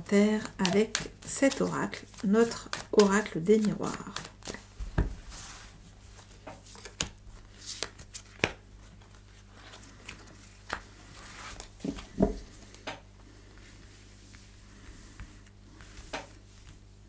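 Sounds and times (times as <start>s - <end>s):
cards sliding on cloth: 4.4s - 7.0s, 9.6s - 16.9s.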